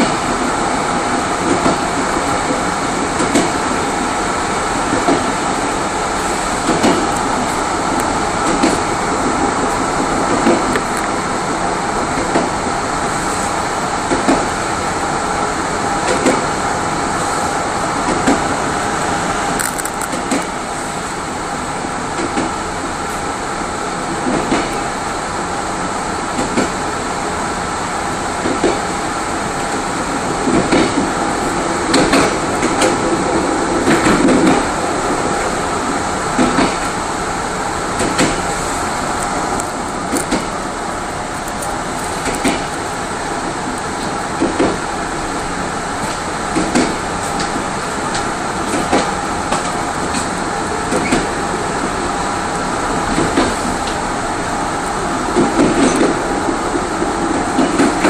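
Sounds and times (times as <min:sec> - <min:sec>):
train running rumble and hum: 0:00.0 - 0:58.0
wheel clacks over rail joints: 0:06.2 - 0:11.2, 0:30.4 - 0:35.6, 0:39.2 - 0:51.4, 0:52.6 - 0:54.0, 0:54.8 - 0:58.0.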